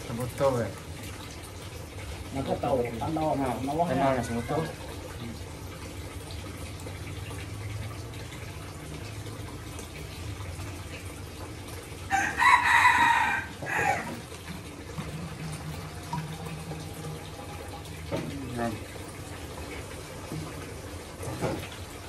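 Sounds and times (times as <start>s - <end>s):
liquid pouring into plastic bottle: 0.0s - 22.0s
rooster crowing: 4.0s - 4.9s, 12.1s - 14.2s.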